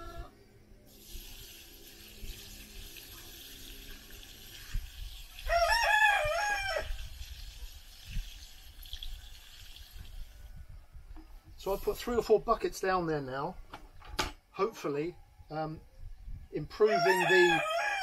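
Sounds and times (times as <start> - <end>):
rooster crowing: 5.4 - 7.0, 16.8 - 18.0.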